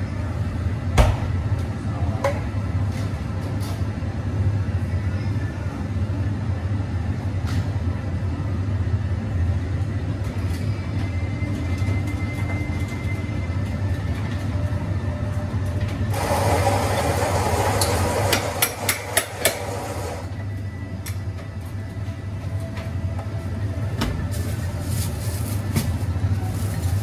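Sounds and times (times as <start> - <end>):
espresso machine hum: 16.1 - 20.4.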